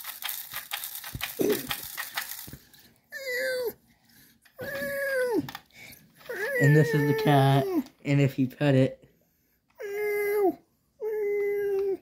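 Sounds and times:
toy clicks: 0.0 - 2.8.

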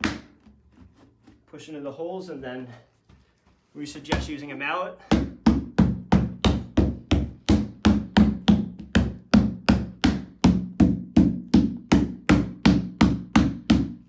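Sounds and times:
rubber mallet striking plastic: 0.0 - 0.5, 5.1 - 14.0.

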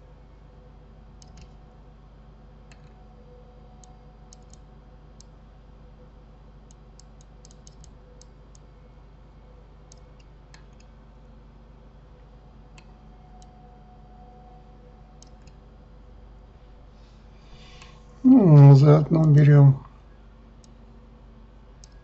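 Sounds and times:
low room hum: 0.0 - 22.0
computer mouse clicking: 1.2 - 1.6, 3.8 - 5.3, 6.7 - 8.7, 9.9 - 10.9, 15.2 - 15.6, 21.8 - 22.0.

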